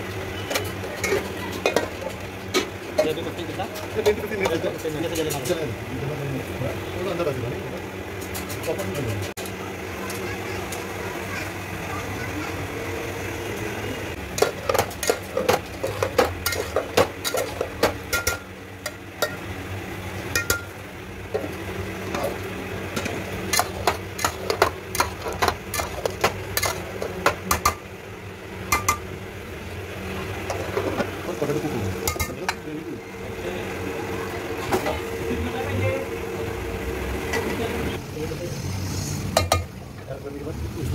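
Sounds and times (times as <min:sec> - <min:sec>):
metal pots and lids clanking: 0:00.2 - 0:05.6, 0:08.2 - 0:09.3, 0:14.2 - 0:19.6, 0:20.2 - 0:27.9, 0:28.6 - 0:29.1, 0:30.3 - 0:32.7, 0:39.3 - 0:39.8.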